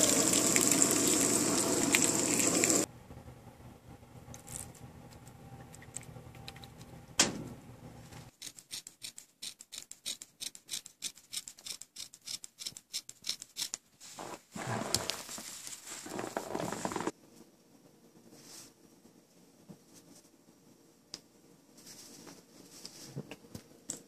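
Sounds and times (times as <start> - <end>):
scissors cutting fabric: 8.3 - 13.8
fabric rustling: 14.0 - 17.1.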